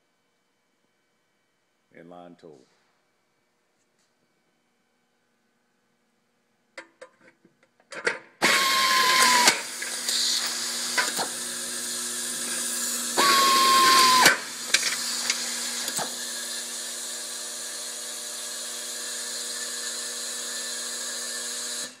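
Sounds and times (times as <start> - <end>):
screw feeder humming: 8.4 - 20.2
screwdriver whining: 8.4 - 22.0.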